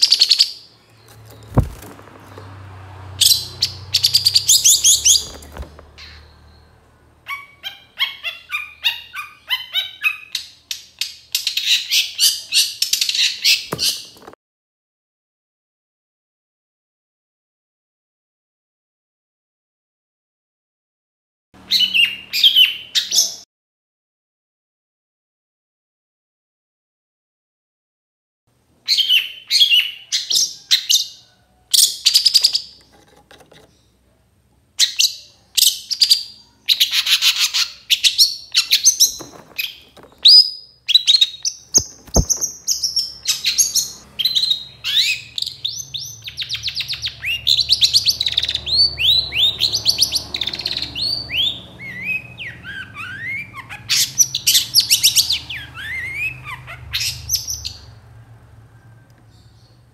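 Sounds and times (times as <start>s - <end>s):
bird singing harsh chirps and whistles: 3.2s - 6.7s, 34.8s - 57.9s.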